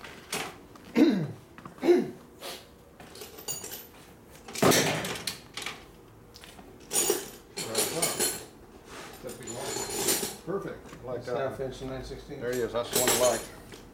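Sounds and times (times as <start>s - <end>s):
metal tools clinking and clanking: 3.0s - 3.9s, 6.8s - 8.5s, 9.1s - 10.5s, 12.4s - 13.8s.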